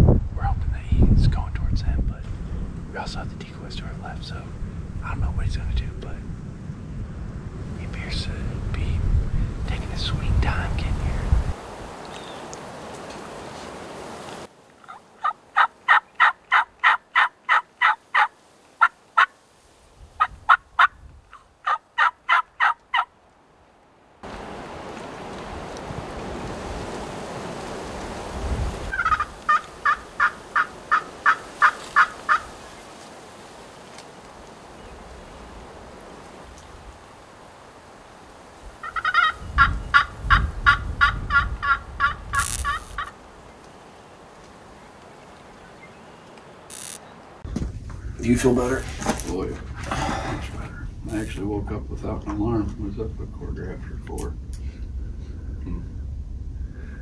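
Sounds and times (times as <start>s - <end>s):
low rumble: 0.0s - 11.6s, 47.4s - 57.0s
turkey yelping: 14.8s - 19.3s, 20.2s - 23.1s, 28.9s - 32.5s, 38.8s - 43.2s.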